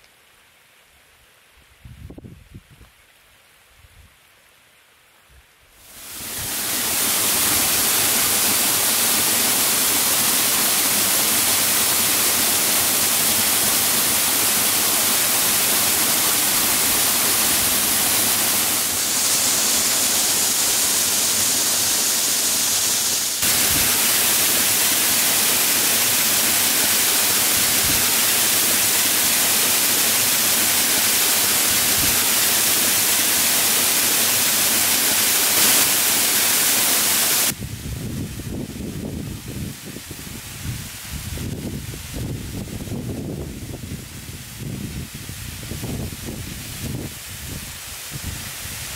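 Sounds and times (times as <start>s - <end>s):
waterfall rushing: 5.9s - 37.6s.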